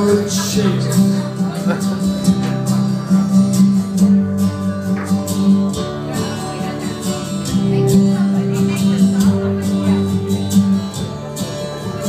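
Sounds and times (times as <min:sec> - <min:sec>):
person singing: 0:00.0 - 0:01.4
strummed acoustic guitar: 0:00.0 - 0:12.0.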